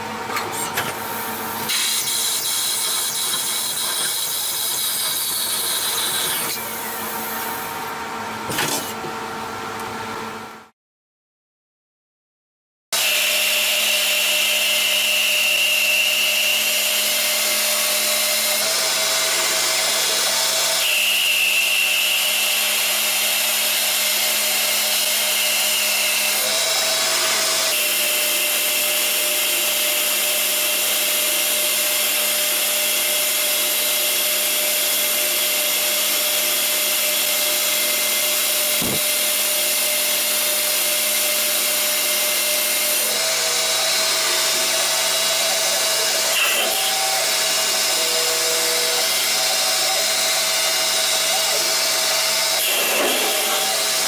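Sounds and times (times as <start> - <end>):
high tool whine: 13.0 - 54.0
lathe machine whir: 13.0 - 54.0.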